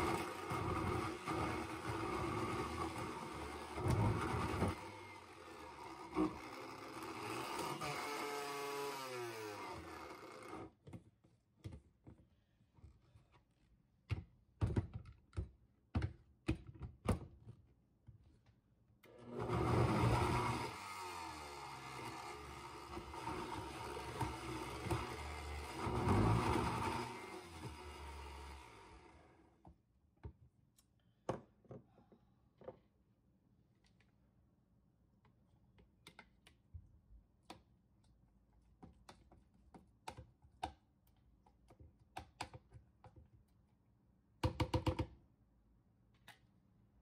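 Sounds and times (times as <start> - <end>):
blender motor churning: 0.0 - 10.7, 19.1 - 29.4.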